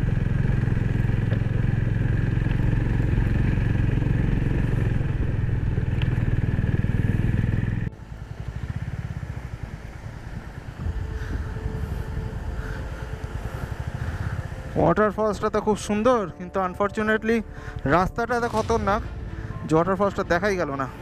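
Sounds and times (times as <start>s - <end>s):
motorcycle engine running: 0.0s - 21.0s
faint steady whine: 7.8s - 16.3s.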